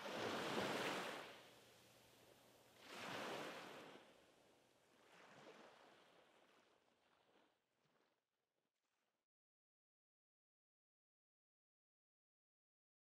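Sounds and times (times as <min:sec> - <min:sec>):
small waves washing onto shore: 0:00.0 - 0:08.1.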